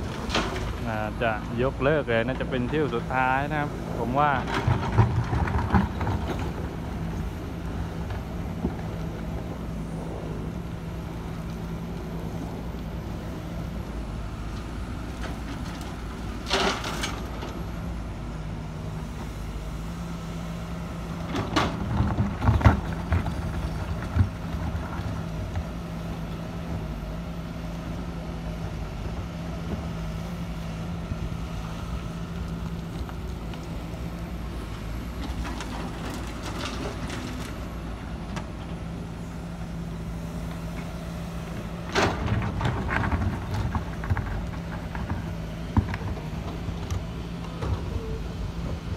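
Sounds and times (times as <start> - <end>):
excavator diesel engine running: 0.0 - 48.9.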